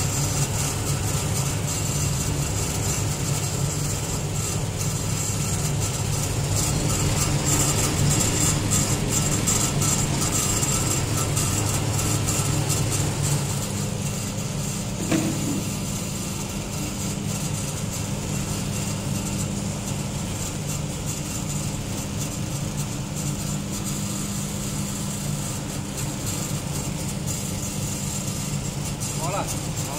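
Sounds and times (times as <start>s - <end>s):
noodle machine humming: 0.0s - 16.6s
short knock: 15.0s - 15.7s.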